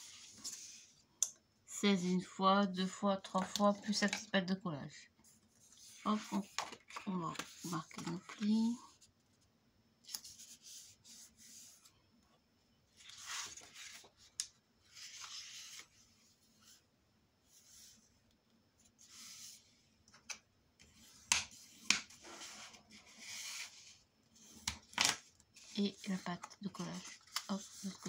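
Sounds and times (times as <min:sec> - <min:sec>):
hands rubbing folded paper: 0:25.5 - 0:28.0.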